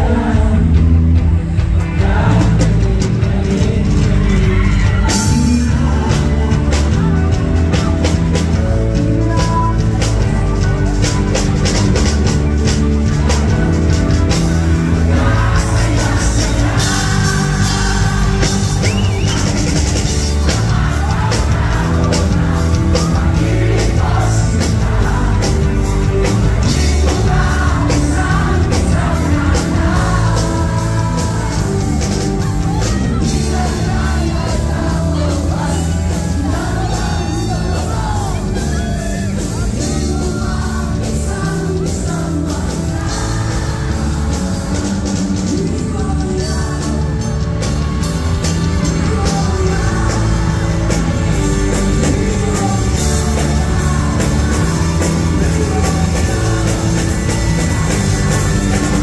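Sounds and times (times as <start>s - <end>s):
live rock band playing: 0.0s - 59.0s
man singing lead vocals: 0.0s - 59.0s.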